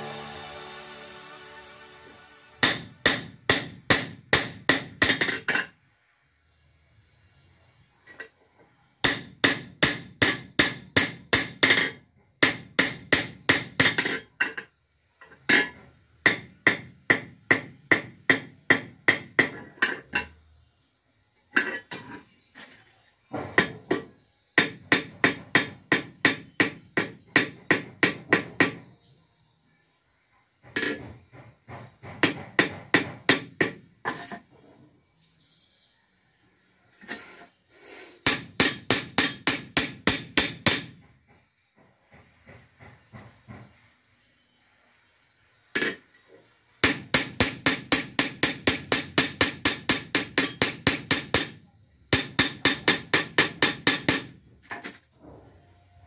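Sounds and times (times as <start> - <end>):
hammer ringing on metal: 2.6 - 5.4, 9.0 - 14.2, 23.6 - 28.9, 38.2 - 41.0, 46.8 - 54.4.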